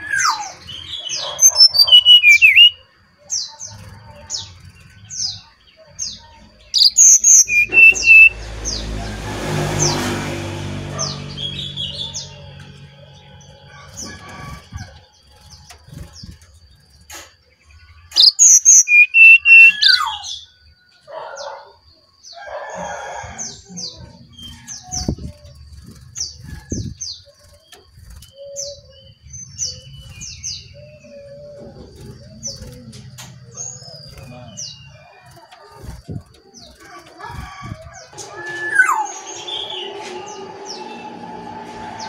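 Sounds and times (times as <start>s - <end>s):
bird chirping: 0.0s - 9.1s, 10.9s - 41.7s
bird rapid note trill: 0.2s - 2.8s, 6.8s - 8.4s, 18.2s - 20.2s.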